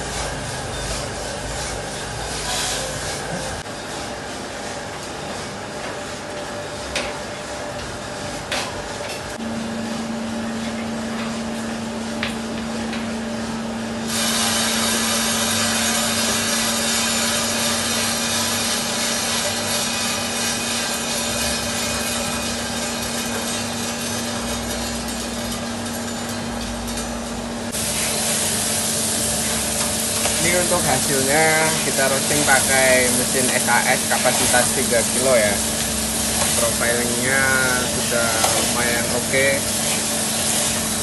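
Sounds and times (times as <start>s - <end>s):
roaster motor hum: 0.0s - 41.0s
coffee beans rattling in tray: 29.6s - 41.0s.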